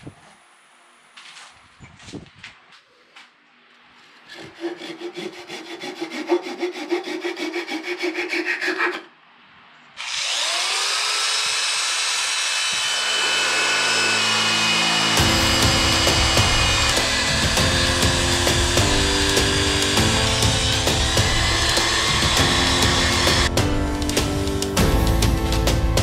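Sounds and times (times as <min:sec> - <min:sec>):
hand saw cutting wood: 0:04.2 - 0:09.1, 0:10.0 - 0:23.6
electric drill sanding wood: 0:10.0 - 0:23.5.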